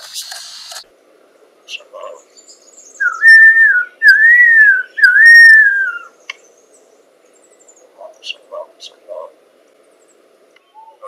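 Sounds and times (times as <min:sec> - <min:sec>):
bird whistled phrases: 0:02.8 - 0:06.2, 0:10.6 - 0:11.0.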